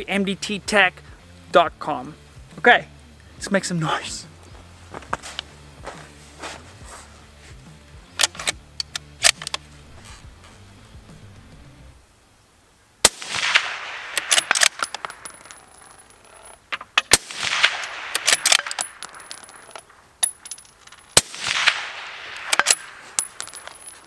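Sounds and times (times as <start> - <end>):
rifle bolt clicking: 8.2 - 9.6, 14.2 - 15.3, 16.8 - 21.0, 22.3 - 23.6
suppressed rifle shots: 13.0 - 16.0, 16.9 - 19.8, 21.1 - 23.7.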